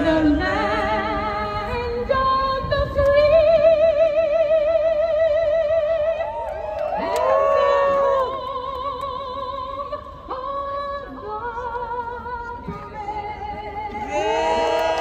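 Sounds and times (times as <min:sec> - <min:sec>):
woman singing opera: 0:00.0 - 0:06.3.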